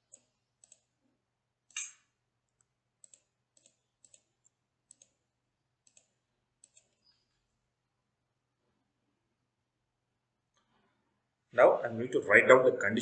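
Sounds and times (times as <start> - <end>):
faint mouse clicks: 0.1 - 0.9, 1.7 - 5.2, 5.8 - 7.2.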